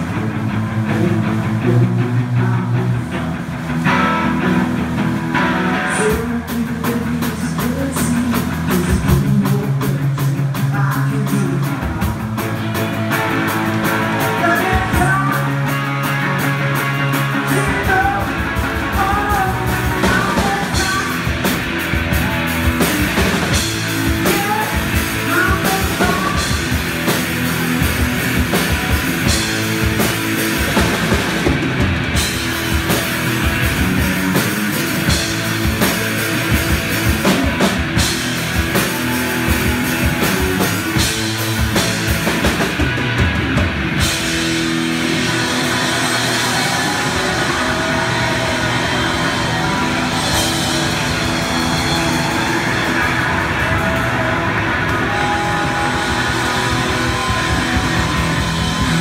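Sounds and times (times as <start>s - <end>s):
distorted electric guitar: 0.0s - 59.0s
drum kit beat: 4.8s - 59.0s
person singing: 5.4s - 16.2s, 17.2s - 27.2s.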